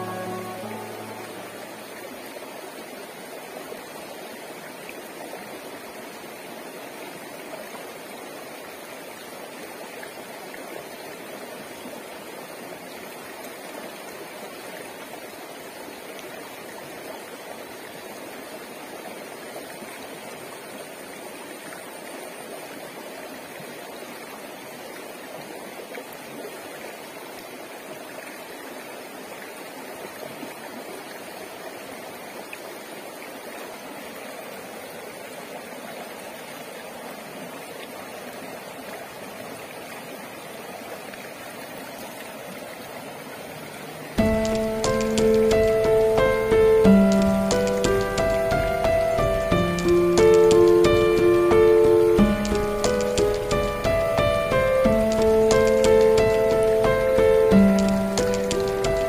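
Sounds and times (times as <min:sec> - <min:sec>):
stream flowing over stones: 0:00.0 - 0:59.0.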